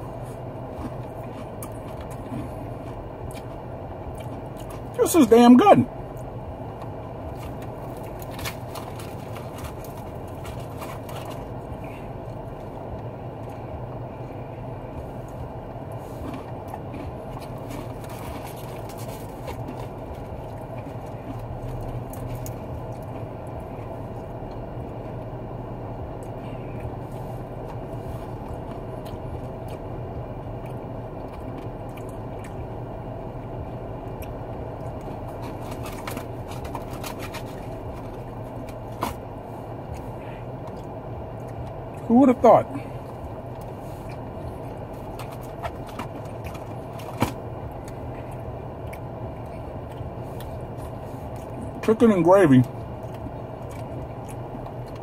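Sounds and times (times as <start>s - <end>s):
person chewing: 0.0s - 5.0s, 6.0s - 25.4s, 26.0s - 42.0s, 42.8s - 51.9s, 52.6s - 55.0s
car engine idling hum: 0.0s - 55.0s
clicks and scrapes of food handling: 6.8s - 12.8s, 15.3s - 23.2s, 34.2s - 39.2s, 43.5s - 51.9s.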